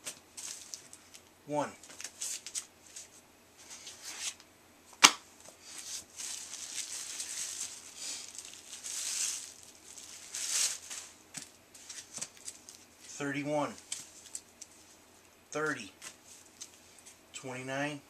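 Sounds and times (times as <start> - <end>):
plastic bags rustling and crinkling: 0.0 - 4.0, 5.5 - 15.0.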